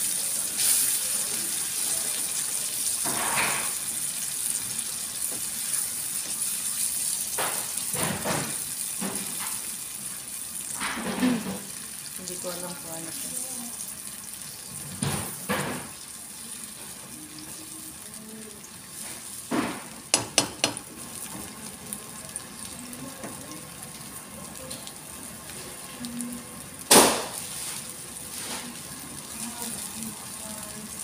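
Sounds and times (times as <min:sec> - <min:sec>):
food sizzling in a frying pan: 0:00.0 - 0:31.0
spatula knocking against pan: 0:20.1 - 0:20.9.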